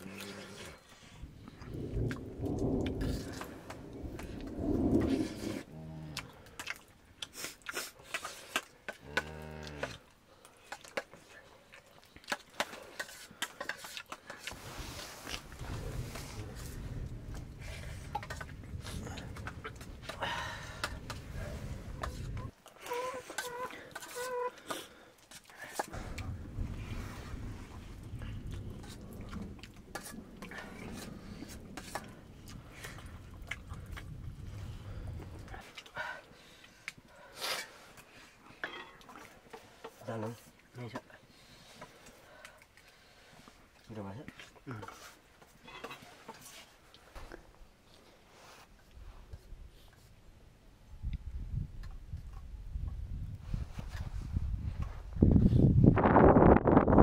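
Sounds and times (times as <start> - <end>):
chewing: 6.1 - 14.6, 28.3 - 40.6.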